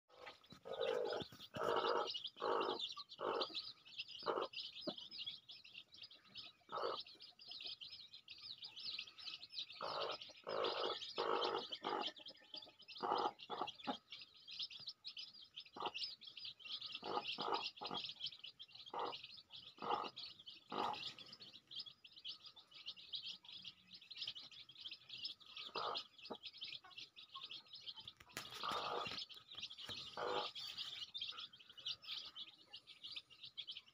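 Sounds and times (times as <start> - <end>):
hen clucking: 0.1 - 5.2, 6.2 - 7.9, 9.6 - 14.9, 15.6 - 21.8, 24.2 - 32.9
chicks peeping: 0.1 - 33.9.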